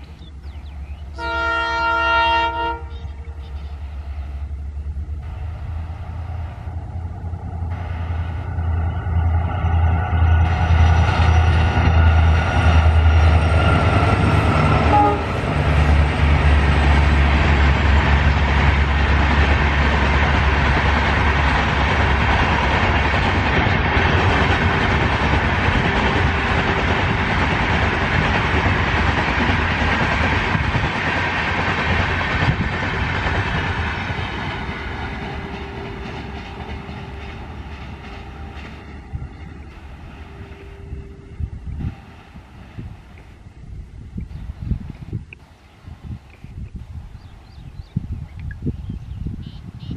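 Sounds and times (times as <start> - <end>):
deep locomotive engine drone: 0.0 - 49.9
train coaches rushing and clattering: 5.2 - 43.4.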